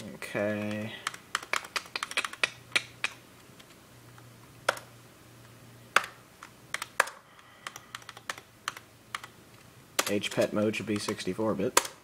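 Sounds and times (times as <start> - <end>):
keyboard keys clicking: 0.4 - 3.8, 6.0 - 9.3.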